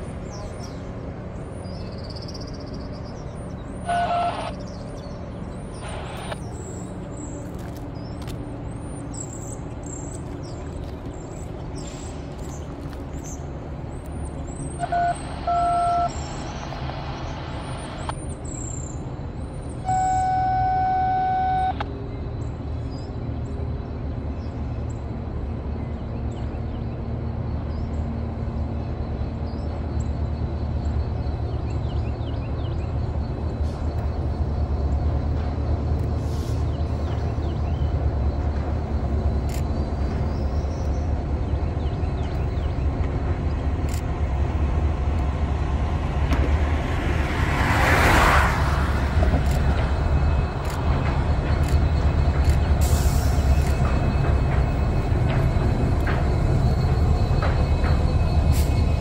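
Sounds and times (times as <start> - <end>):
diesel train approaching: 0.0 - 59.0
traffic rumble: 0.0 - 59.0
train horn blasts: 19.8 - 21.8.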